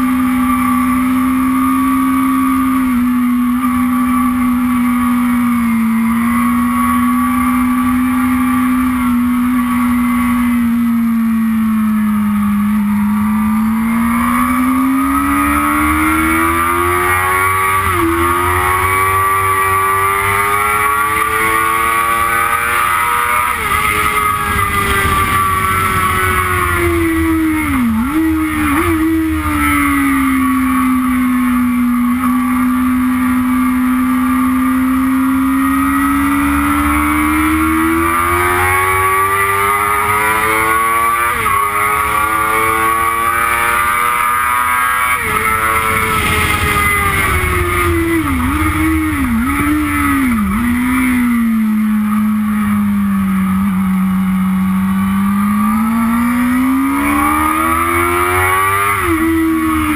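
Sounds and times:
motorcycle engine at high revs: 0:00.0 - 0:59.9
wind rush on microphone: 0:23.6 - 0:27.8, 0:45.2 - 0:50.6.

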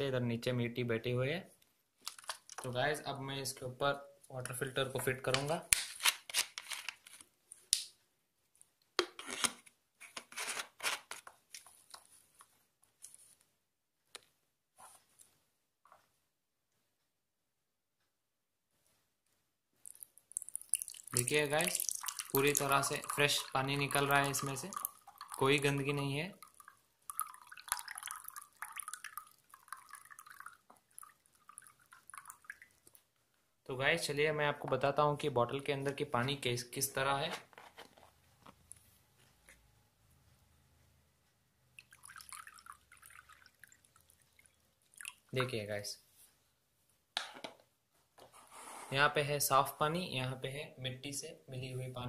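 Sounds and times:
plastic scraping and rubbing: 0:09.1 - 0:11.7, 0:37.3 - 0:38.6
water dripping into glass: 0:19.8 - 0:33.0, 0:41.8 - 0:45.3.

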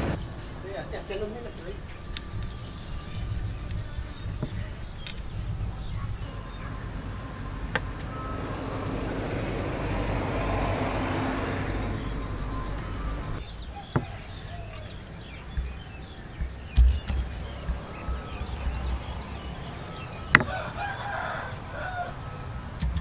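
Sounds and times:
rushing noise: 0:00.0 - 0:01.2.

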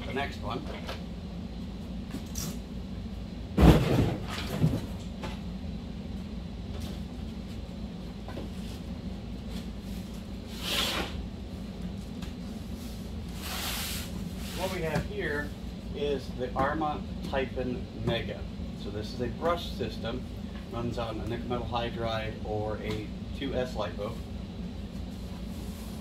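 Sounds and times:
steady low hum: 0:00.0 - 0:26.0
heavy thump on cardboard box: 0:03.6 - 0:04.9.

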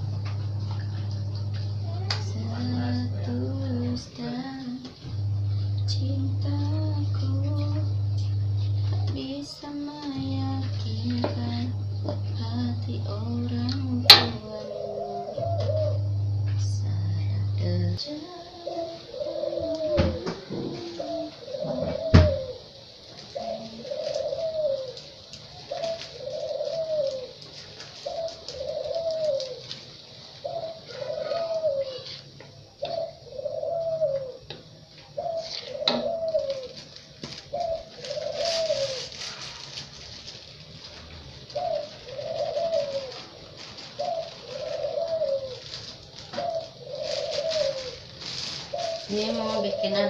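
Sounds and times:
dove cooing: 0:00.0 - 0:50.0.

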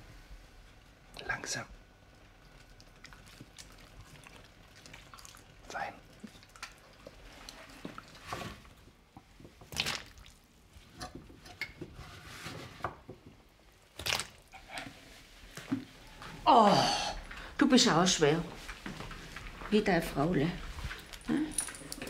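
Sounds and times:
vegetables splashing into broth: 0:09.6 - 0:10.4, 0:13.9 - 0:14.4.

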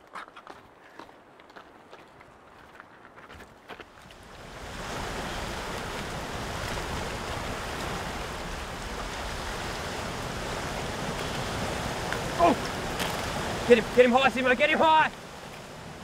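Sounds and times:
surf washing over reef: 0:04.0 - 0:16.0.

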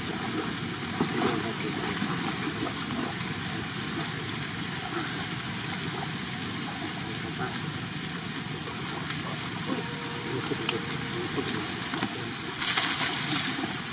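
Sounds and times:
water sounds: 0:00.0 - 0:13.9
boat motor idling: 0:07.4 - 0:12.6.

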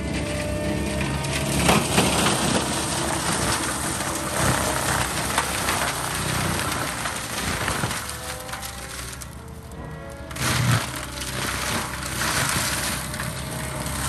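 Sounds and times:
diesel engine running hard: 0:00.0 - 0:14.0.

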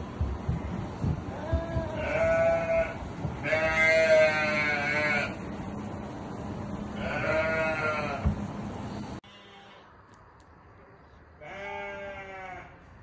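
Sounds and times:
low thumps: 0:00.0 - 0:03.9
sheep bleating: 0:01.4 - 0:05.4, 0:07.0 - 0:08.2, 0:11.4 - 0:12.8.

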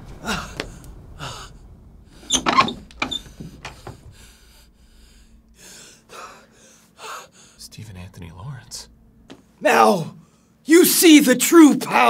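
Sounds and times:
man straining and gasping: 0:00.2 - 0:01.7.

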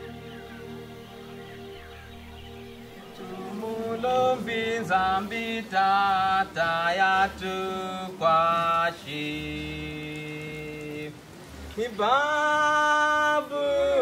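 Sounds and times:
low drone: 0:00.0 - 0:07.8
solo voice chanting: 0:03.0 - 0:11.2, 0:11.8 - 0:14.0.

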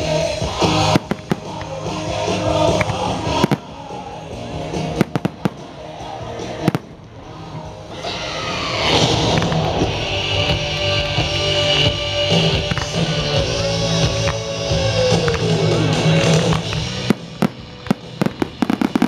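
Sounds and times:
loud music: 0:00.0 - 0:19.0
firework shells crackling and popping: 0:00.6 - 0:02.1, 0:09.0 - 0:10.1, 0:15.1 - 0:19.0.

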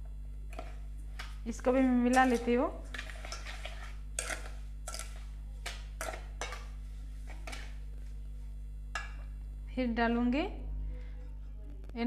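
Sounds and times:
steady low hum: 0:00.0 - 0:12.0
metal ladle scraping steel bowl: 0:02.1 - 0:05.2.

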